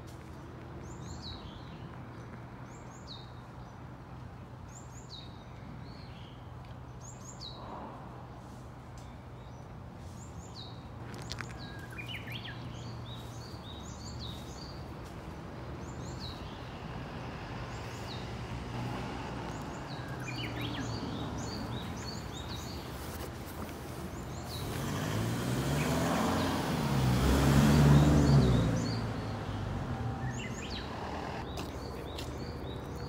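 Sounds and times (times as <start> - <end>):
songbirds chirping: 0.0 - 33.0
traffic hum: 0.0 - 33.0
vehicle passing close: 15.9 - 22.7, 24.3 - 31.9.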